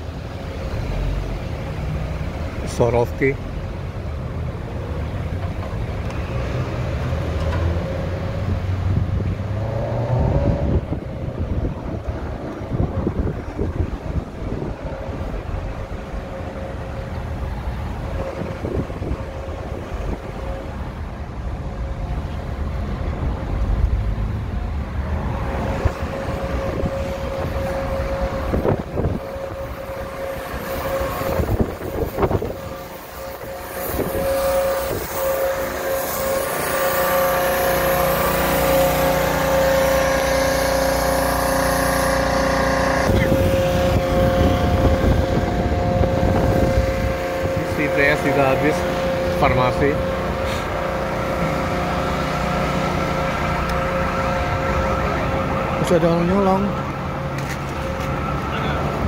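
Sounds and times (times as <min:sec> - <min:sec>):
road and traffic noise: 0:00.0 - 0:59.0
wind on microphone: 0:08.2 - 0:36.8, 0:42.3 - 0:51.6
steady hum: 0:10.3 - 0:59.0.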